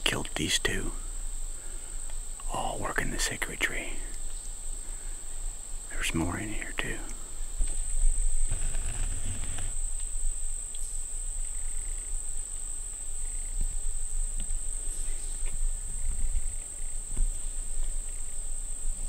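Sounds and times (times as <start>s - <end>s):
insects droning: 0.0s - 19.0s
faint ticks: 4.0s - 4.5s, 6.8s - 18.4s.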